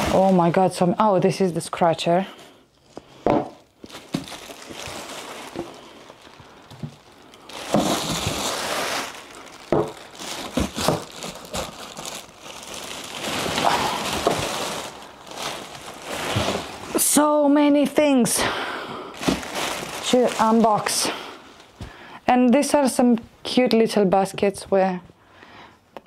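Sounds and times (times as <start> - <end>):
plastic packaging crinkling: 0.0 - 1.0, 2.4 - 17.3, 19.1 - 21.9.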